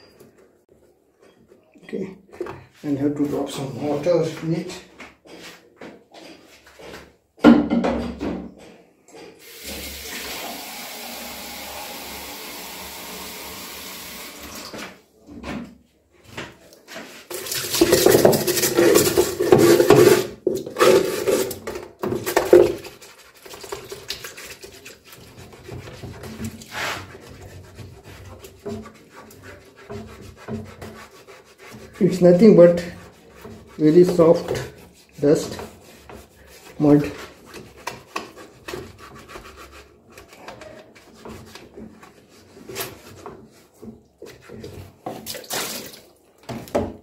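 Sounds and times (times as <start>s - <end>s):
water pouring into drum: 9.4s - 14.7s
brush scrubbing wet plastic: 16.7s - 46.6s.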